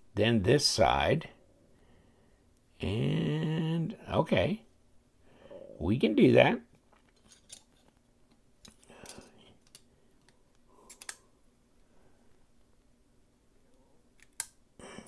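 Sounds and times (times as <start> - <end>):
small metal knife parts clicking: 10.8 - 11.2.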